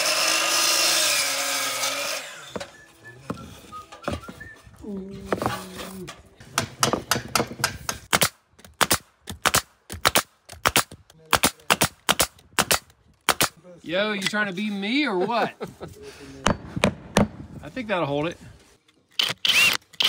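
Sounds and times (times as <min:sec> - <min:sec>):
nail gun firing: 0:06.6 - 0:13.6.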